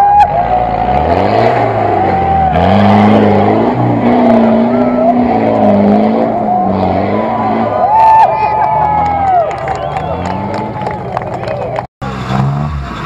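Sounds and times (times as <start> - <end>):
engine revving under load: 0.3 - 8.0, 12.0 - 13.0.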